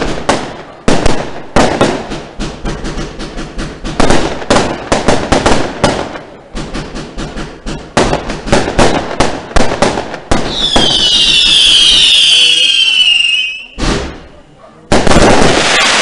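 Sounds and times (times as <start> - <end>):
fireworks bangs and crackles: 0.0 - 16.0
shrill descending whistle: 10.5 - 13.8.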